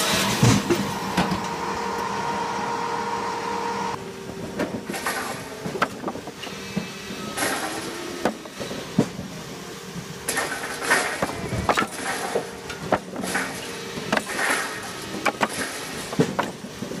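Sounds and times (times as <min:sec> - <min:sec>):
firewood processor humming: 0:00.0 - 0:17.0
wood clattering: 0:10.3 - 0:17.0.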